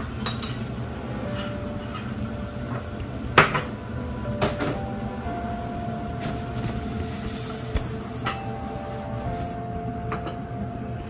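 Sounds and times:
cookware and utensils clattering: 0:00.0 - 0:03.8.

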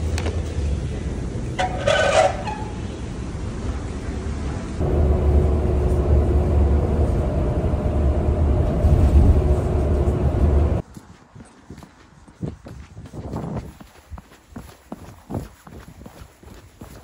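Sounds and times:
bus engine and road rumble: 0:00.0 - 0:12.2.

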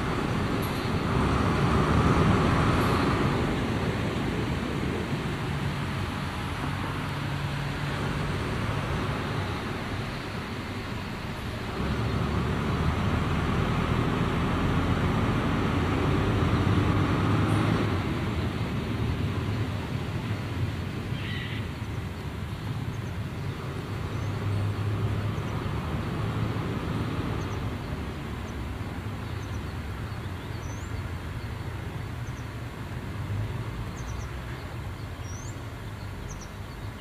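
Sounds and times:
diesel locomotive engine rumbling: 0:00.0 - 0:37.0
small birds chirping: 0:27.3 - 0:32.6, 0:33.8 - 0:37.0.

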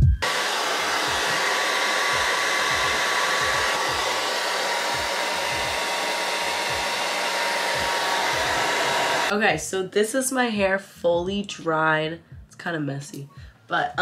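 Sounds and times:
hair dryer running: 0:00.2 - 0:09.3.

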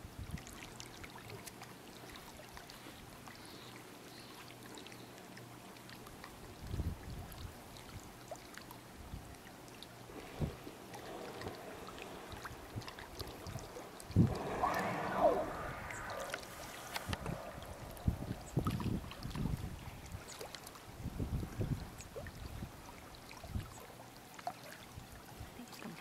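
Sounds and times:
wavering pitched sound: 0:14.2 - 0:18.9.

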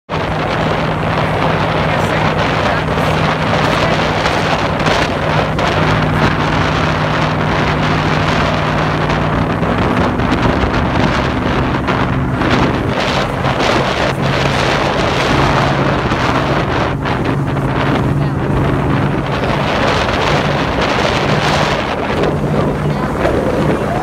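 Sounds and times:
higher engine tone: 0:00.1 - 0:24.0
power boat engine droning: 0:00.1 - 0:24.0
wind buffeting microphone: 0:00.1 - 0:24.0.

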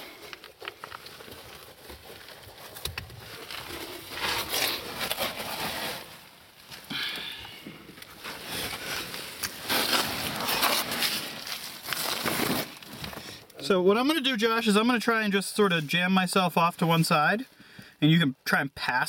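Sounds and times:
fabric scraping against rock: 0:00.0 - 0:07.0, 0:08.1 - 0:13.4.

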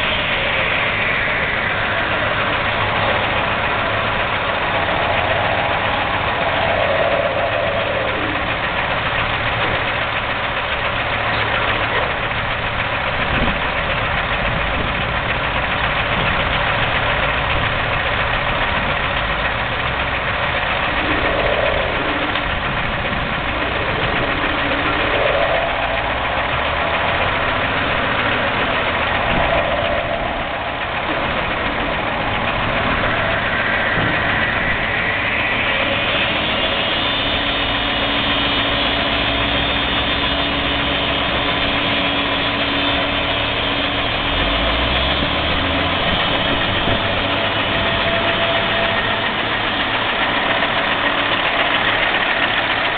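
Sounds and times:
crane hoist whine: 0:00.0 - 0:52.9
diesel engine idling: 0:00.0 - 0:52.9.

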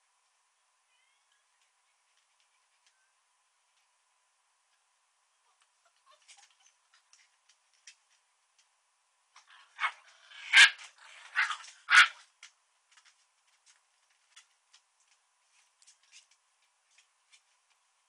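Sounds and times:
dog barking: 0:09.6 - 0:12.2.

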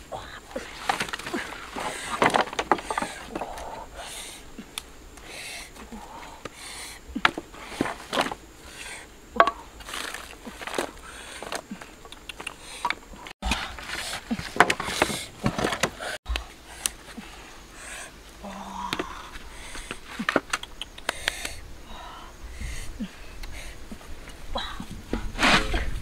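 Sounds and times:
wood knocking on wood and stone: 0:01.8 - 0:03.5, 0:09.4 - 0:09.7
dry sticks snapping: 0:09.4 - 0:13.0, 0:19.8 - 0:21.6.

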